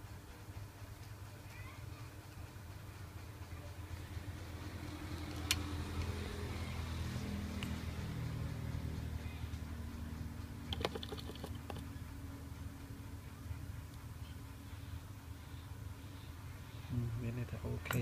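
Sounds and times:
low engine drone: 2.6 - 17.9.

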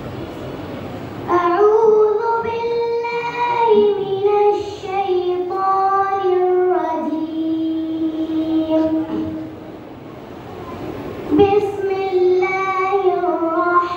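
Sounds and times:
boy chanting over loudspeaker: 1.2 - 9.7, 11.3 - 13.9.

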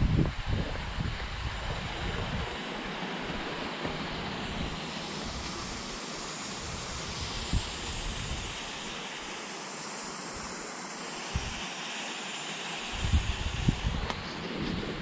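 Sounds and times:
wind buffeting microphone: 0.0 - 2.6, 6.6 - 8.6, 11.3 - 11.6, 13.0 - 15.0
rushing hiss of open air: 0.0 - 15.0.

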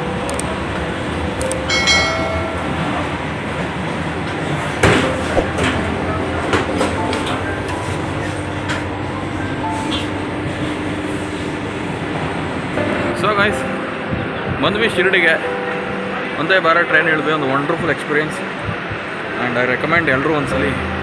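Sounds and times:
high-pitched ringing tone: 0.0 - 3.2
train coach rumble and rattle: 0.0 - 21.0.

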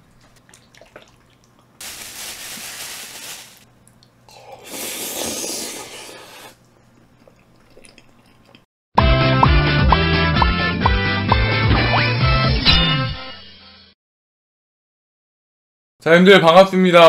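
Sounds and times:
wet eating sounds: 0.0 - 1.8, 3.8 - 8.7.

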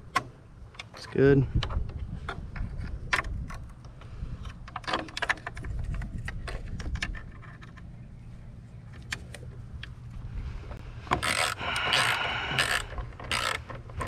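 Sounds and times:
steady low hum: 0.0 - 14.0
hand tools clicking and rattling: 11.1 - 14.0.

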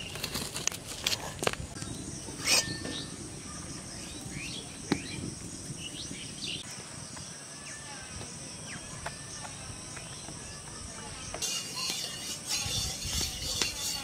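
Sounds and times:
insect drone: 11.2 - 14.0.

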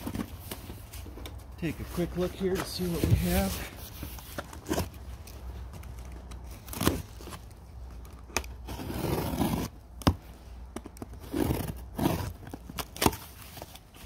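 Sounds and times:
cardboard flaps crinkling: 0.0 - 14.0
blade slitting packing tape: 11.0 - 13.7.

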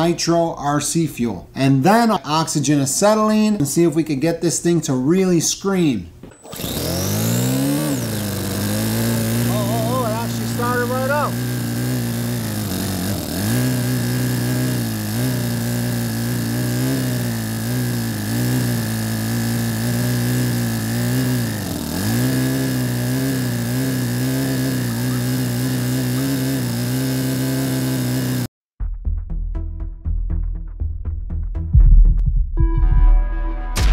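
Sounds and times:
model engine running: 6.4 - 28.5.

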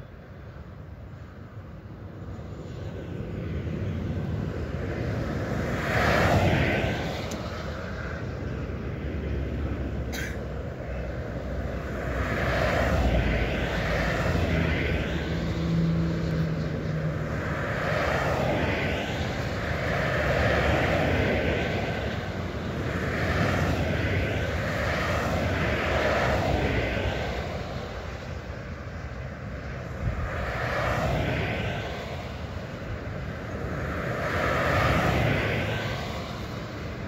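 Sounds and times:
cars passing at speed: 0.0 - 37.0
distant traffic hum: 0.0 - 37.0.

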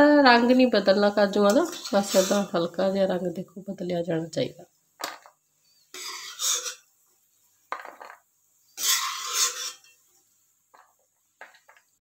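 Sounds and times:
metal spoon scraping a pan: 1.4 - 2.7, 5.9 - 6.9, 8.7 - 10.1.

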